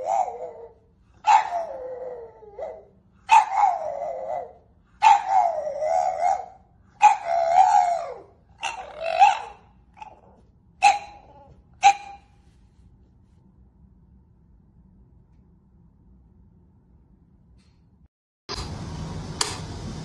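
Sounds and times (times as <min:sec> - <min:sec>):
dog howling: 0:00.0 - 0:11.6.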